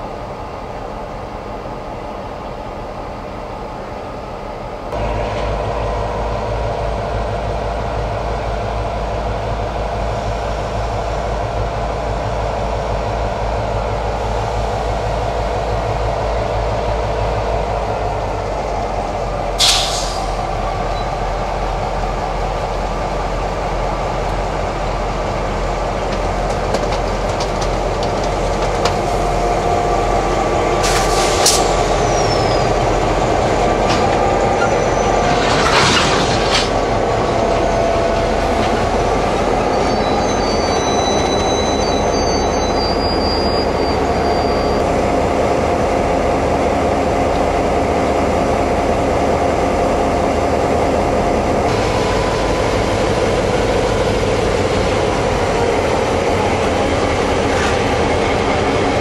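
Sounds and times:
diesel locomotives running: 0.0 - 59.0
train wagons rolling: 4.9 - 45.3, 46.8 - 59.0
high wheel squeals: 31.2 - 33.1, 34.1 - 35.8, 37.4 - 44.8.

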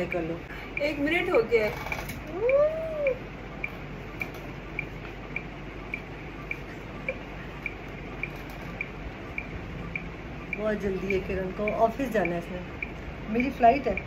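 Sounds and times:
low room hum: 0.0 - 14.0
timer ticking: 0.0 - 14.0.

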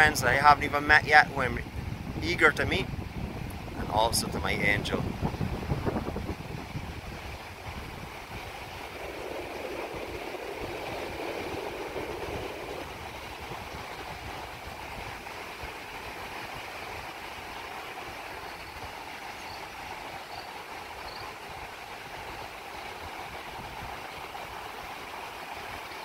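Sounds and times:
ocean surf breaking: 1.2 - 18.4.

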